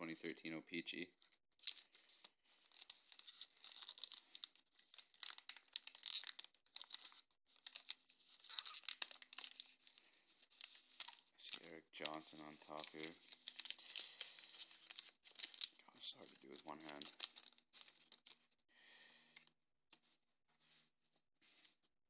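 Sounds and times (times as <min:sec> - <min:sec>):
paper wrapper tearing and crinkling: 0:01.6 - 0:18.4.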